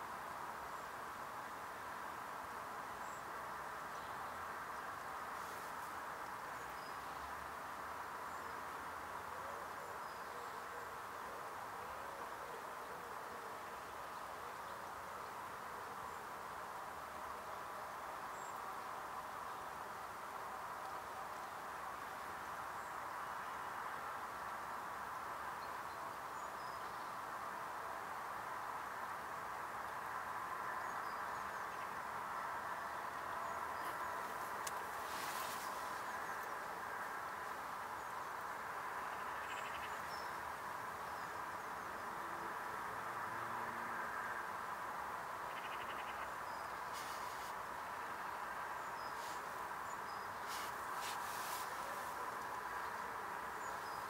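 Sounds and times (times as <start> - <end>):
outdoor background hiss: 0.0 - 54.0
soft rustle: 5.3 - 7.2, 33.8 - 36.6, 46.9 - 47.7, 49.0 - 53.0
small birds chirping: 45.5 - 54.0.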